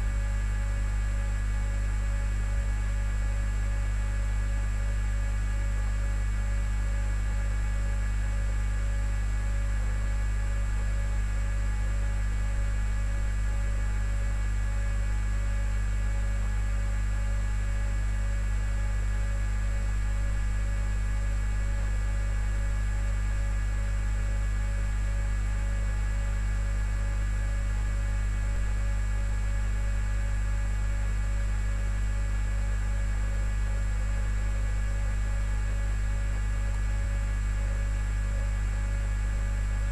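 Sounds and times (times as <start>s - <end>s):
electrical hum: 16.0s - 39.9s.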